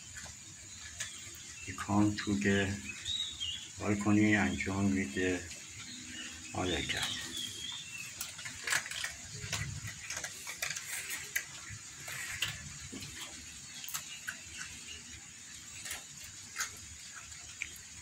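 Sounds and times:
cats crunching dry kibble: 4.1s - 18.0s.

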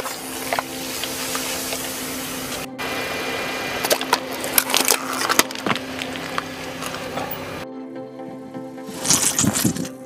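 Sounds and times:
tyre rolling low hum: 0.0s - 7.6s
plastic bottles cracking and crunching: 3.8s - 7.2s, 8.9s - 10.0s.

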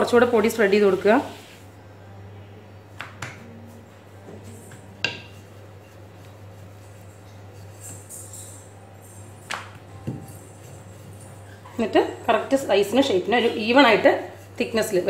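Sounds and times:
steady low hum: 0.0s - 15.0s
rolling pin knocking on countertop: 5.0s - 5.4s.

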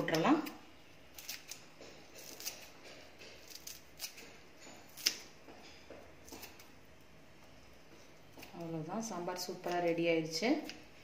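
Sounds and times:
herb leaves clicking and rustling: 0.0s - 5.4s, 6.2s - 6.7s.

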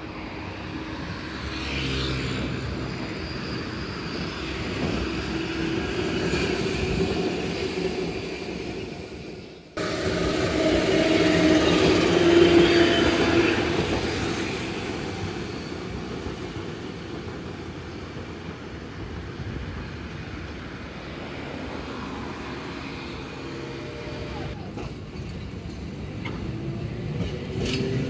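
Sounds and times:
streetcar running past: 0.0s - 28.0s.

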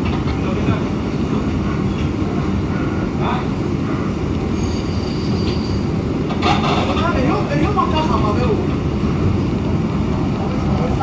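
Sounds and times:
subway car wheels rumbling: 0.0s - 11.0s
high wheel squeal: 4.4s - 6.1s.

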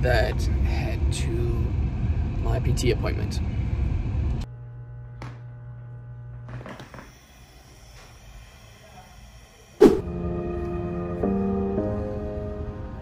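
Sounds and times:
low electrical hum: 0.0s - 9.8s
soft background music: 10.0s - 13.0s.

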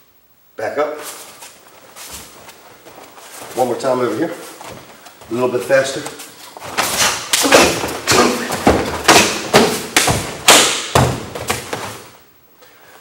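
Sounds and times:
feet pounding a mat: 1.2s - 12.2s
strikes slapping and thudding: 6.6s - 12.0s.

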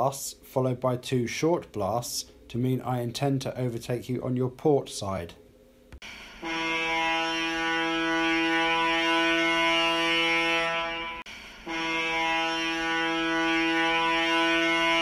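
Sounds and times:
ship's whistle low blasts: 6.2s - 15.0s.

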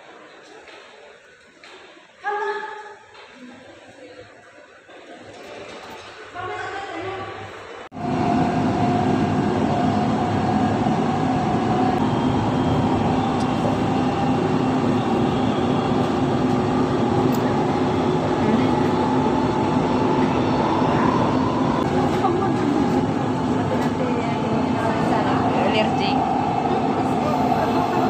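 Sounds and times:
train wheels rumbling on rail: 8.0s - 28.0s.

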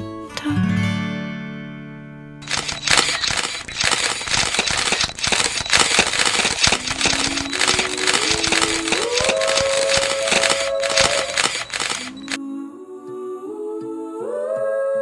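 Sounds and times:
rapid clicks: 2.4s - 12.4s.

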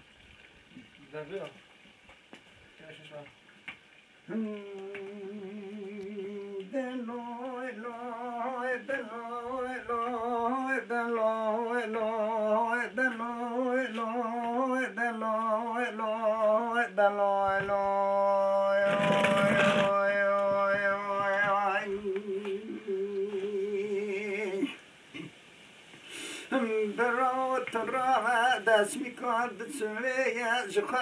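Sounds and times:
man singing unaccompanied: 4.3s - 24.9s, 26.5s - 31.0s.

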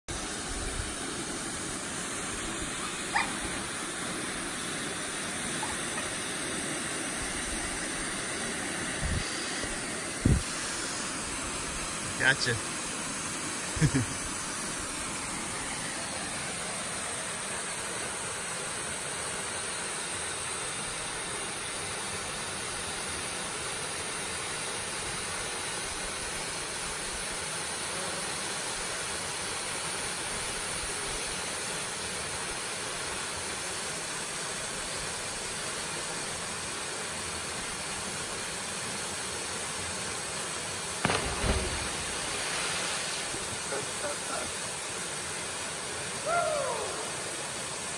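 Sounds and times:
waterfall rushing into pool: 0.1s - 47.9s
person splashing into water: 41.0s - 43.7s.

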